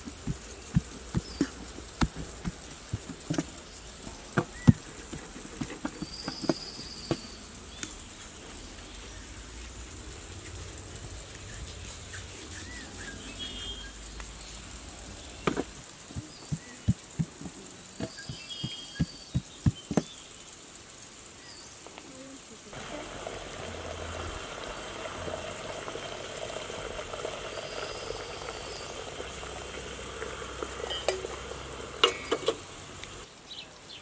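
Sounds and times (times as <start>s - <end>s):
bird chirping: 0.2s - 8.1s, 11.4s - 15.6s, 16.2s - 20.5s.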